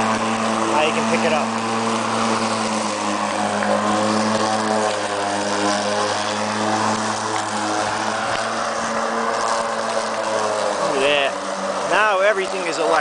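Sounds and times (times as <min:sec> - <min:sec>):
electric lawnmower cutting grass: 0:00.0 - 0:13.0.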